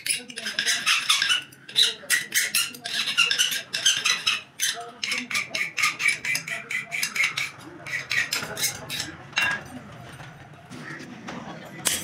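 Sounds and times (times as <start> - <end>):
hand file rasping on steel: 0.0 - 9.1.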